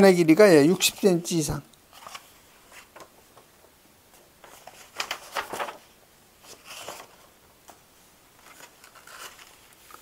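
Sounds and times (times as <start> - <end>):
paper pages rustling: 1.9 - 7.8, 8.4 - 10.0.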